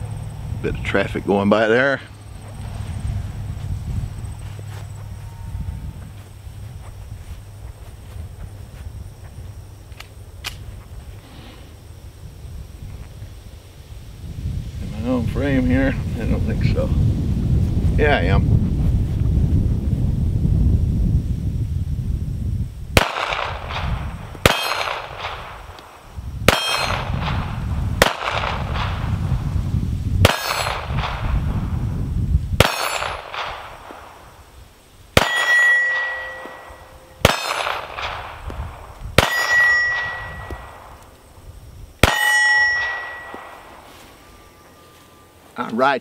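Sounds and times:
pistol shots: 0:23.0 - 0:25.6, 0:26.5 - 0:29.0, 0:30.2 - 0:31.3, 0:32.6 - 0:34.2, 0:35.2 - 0:38.6, 0:39.2 - 0:41.0, 0:42.0 - 0:43.8
steel targets ringing: 0:24.5 - 0:25.0, 0:26.5 - 0:27.1, 0:30.3 - 0:30.8, 0:32.6 - 0:33.2, 0:35.2 - 0:38.0, 0:39.2 - 0:40.9, 0:42.0 - 0:45.2.

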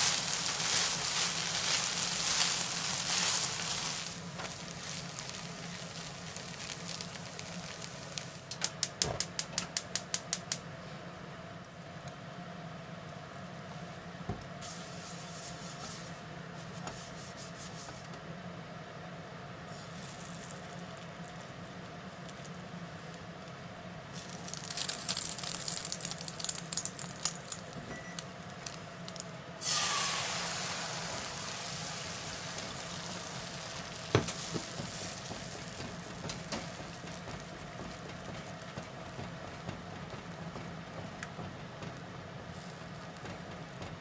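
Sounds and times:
egg sizzling in pan: 0:00.0 - 0:08.5, 0:24.1 - 0:43.8
hot oil crackling: 0:00.0 - 0:10.6, 0:19.7 - 0:44.0.

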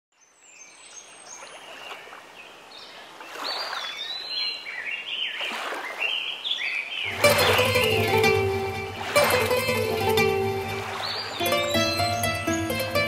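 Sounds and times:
high chirping glides: 0:07.1 - 0:13.0.

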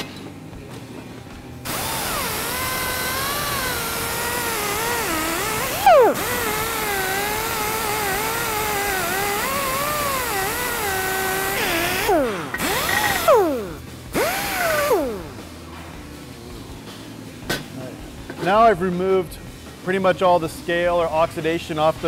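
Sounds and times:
air grinder wire wheel whining: 0:01.6 - 0:15.6.

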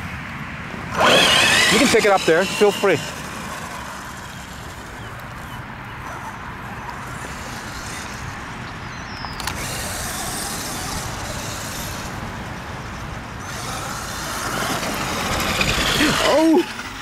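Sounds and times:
rc truck motor and tyres: 0:00.2 - 0:17.0
wind rumble on microphone: 0:14.6 - 0:17.0.

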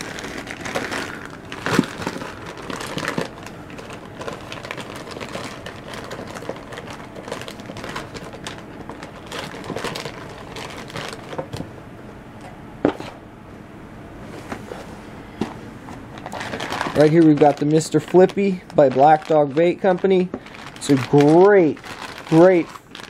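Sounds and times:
plastic packages crinkling: 0:00.0 - 0:11.6, 0:16.1 - 0:23.0
packages knocking against tub: 0:00.0 - 0:11.7, 0:16.2 - 0:22.8.

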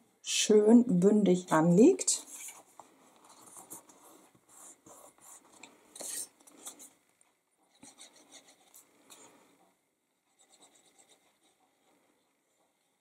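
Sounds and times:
cardstock rustling and rubbing: 0:02.2 - 0:07.0.

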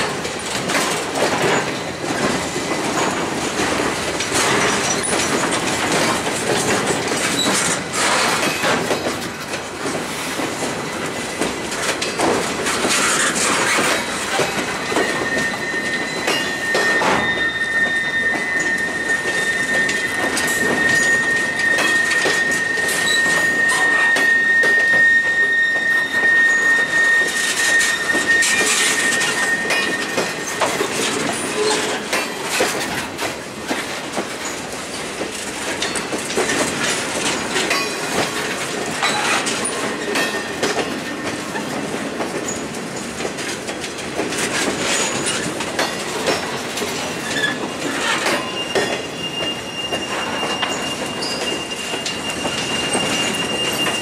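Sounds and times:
train wheels clattering over rail joints: 0:00.0 - 0:54.0
high wheel squeal: 0:12.8 - 0:33.0, 0:35.8 - 0:41.8, 0:44.8 - 0:54.0.

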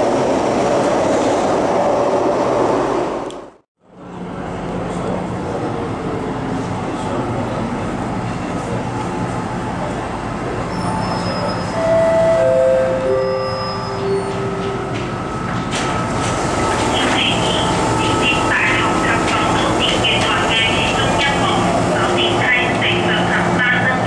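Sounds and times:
train rumble: 0:13.9 - 0:24.0.

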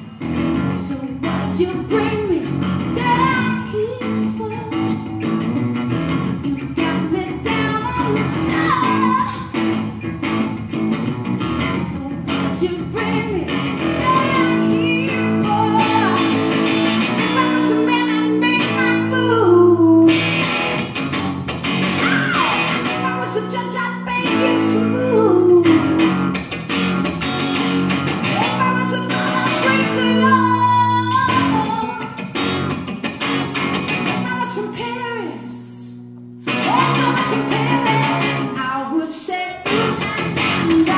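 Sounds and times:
live rock band: 0:00.0 - 0:35.1, 0:36.4 - 0:40.9
electric guitar: 0:00.0 - 0:40.9
woman singing: 0:00.7 - 0:05.1, 0:06.4 - 0:09.6, 0:11.8 - 0:20.3, 0:22.0 - 0:26.3, 0:28.2 - 0:32.2, 0:34.2 - 0:40.9.

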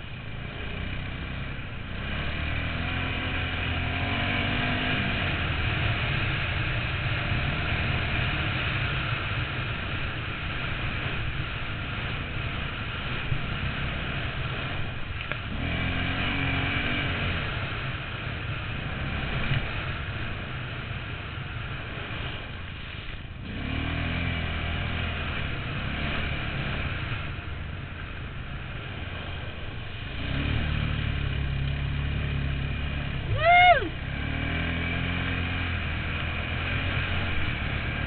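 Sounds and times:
atv engine running: 0:00.0 - 0:38.0.

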